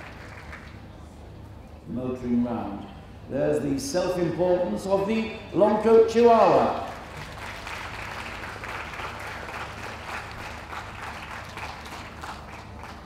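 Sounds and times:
crowd applauding: 0.0s - 0.9s, 6.4s - 13.0s.

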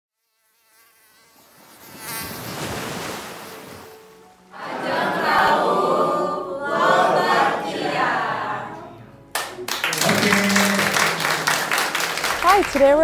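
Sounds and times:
mosquito buzzing: 0.1s - 4.5s
group of people singing: 4.5s - 9.0s.

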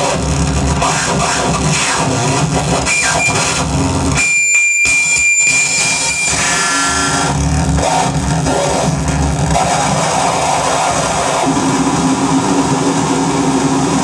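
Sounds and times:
electronic noise music: 0.0s - 14.0s
steady high whine: 0.0s - 14.0s
pulsing low rumble: 6.8s - 14.0s.

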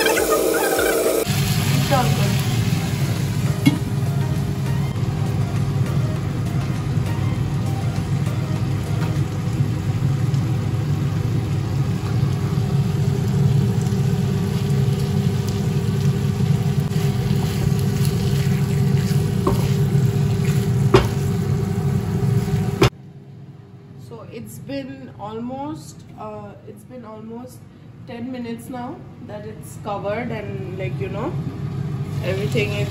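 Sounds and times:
food sizzling in a pan: 0.0s - 4.6s, 7.4s - 22.9s, 31.6s - 32.9s.

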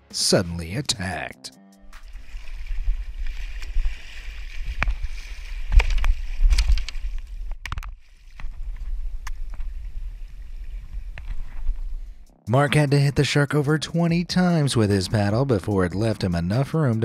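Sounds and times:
water splashing: 1.9s - 12.2s.

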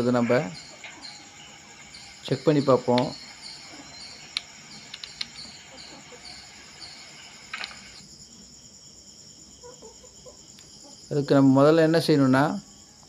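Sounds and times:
steady high hum: 0.0s - 9.6s
insect chirping: 0.0s - 13.0s.

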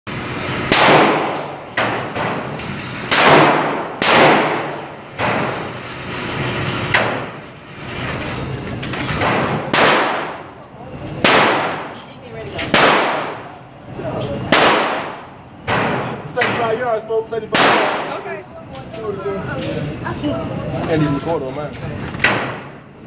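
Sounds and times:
echoing gunshots: 0.6s - 5.7s, 9.2s - 10.6s, 11.2s - 11.9s, 12.7s - 13.6s, 14.5s - 16.7s, 17.5s - 18.2s.

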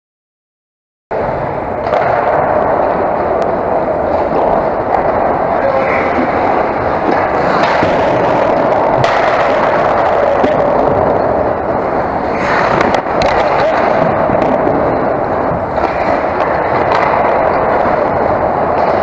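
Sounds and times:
hockey sticks and puck clacking: 1.7s - 19.0s
skate blades scraping ice: 4.0s - 10.8s, 11.7s - 19.0s.

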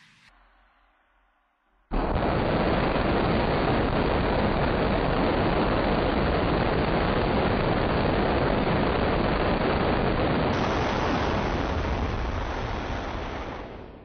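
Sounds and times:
rocket motor exhaust rushing: 10.5s - 14.0s.

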